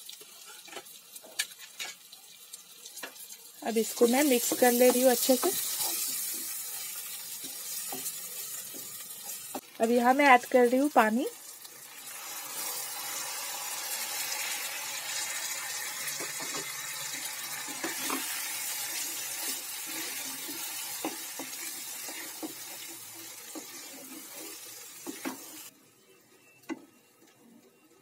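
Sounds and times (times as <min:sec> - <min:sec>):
frying masala hissing and sizzling: 0:00.0 - 0:28.0
spatula scraping a pan: 0:04.0 - 0:09.6, 0:16.0 - 0:25.7.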